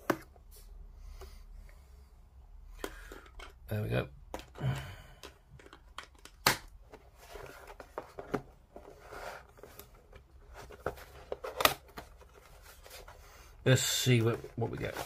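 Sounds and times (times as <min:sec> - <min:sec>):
cardboard box rustling: 0:07.0 - 0:13.2.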